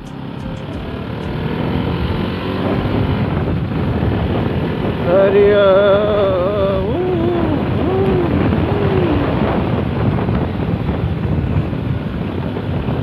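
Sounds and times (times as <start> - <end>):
motorcycle engine running: 0.0 - 13.0
wind buffeting microphone: 0.0 - 13.0
person humming: 5.1 - 9.6.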